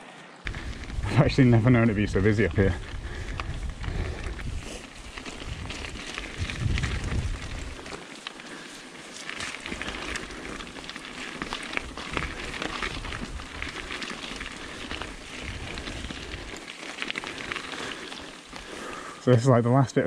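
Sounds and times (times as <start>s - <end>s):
bike tyres rolling over gravel: 0.0s - 20.0s
low rumble: 0.4s - 7.9s.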